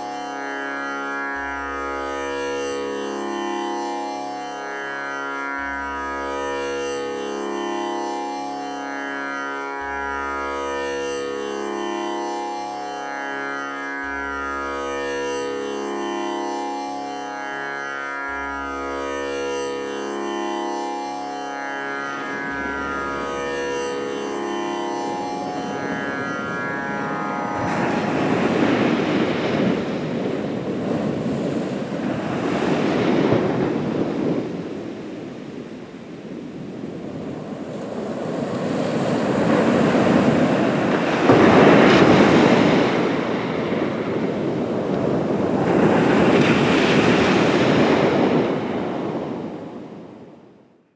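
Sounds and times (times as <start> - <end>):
plucked string music: 0.0 - 31.2.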